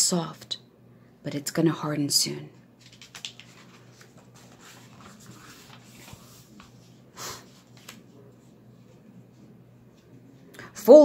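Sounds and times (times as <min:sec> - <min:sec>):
page turning swish: 0:02.8 - 0:06.8
paper rustling: 0:02.8 - 0:08.3.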